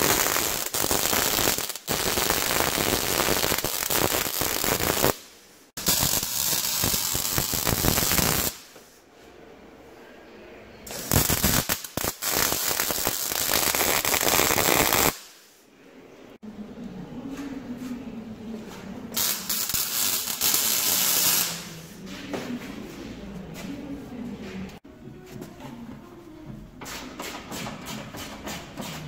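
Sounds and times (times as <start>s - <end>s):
welder arc crackling: 0.0s - 8.7s, 10.9s - 15.3s, 19.2s - 21.7s.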